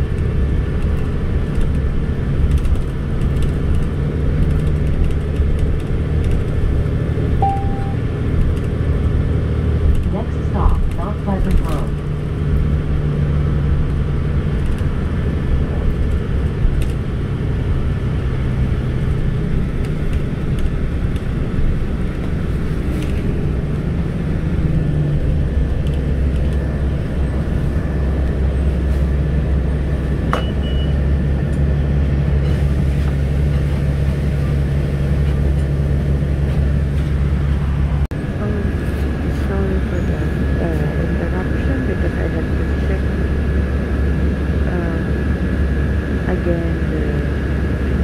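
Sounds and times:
transit vehicle rumble: 0.0 - 48.0.

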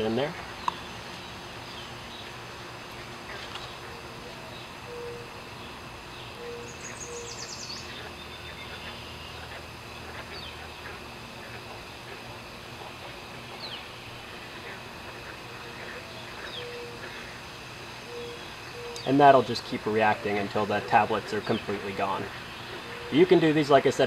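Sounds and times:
birds chirping: 0.0 - 24.0
birds hooting: 0.0 - 24.0
steady background hum: 0.0 - 24.0
bird trilling: 3.0 - 11.1, 13.5 - 23.4.

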